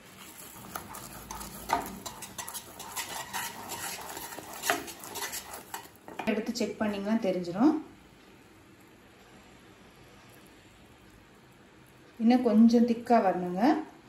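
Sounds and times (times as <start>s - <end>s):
syrup boiling: 0.0s - 6.2s
wooden spoon scraping a pan: 0.0s - 6.3s.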